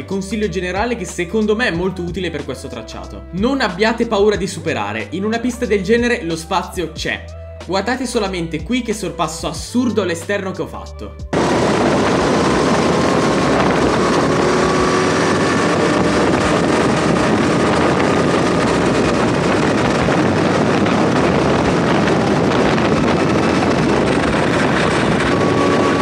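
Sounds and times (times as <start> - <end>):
kart engine at speed: 11.3 - 26.0
wind buffeting microphone: 11.3 - 26.0.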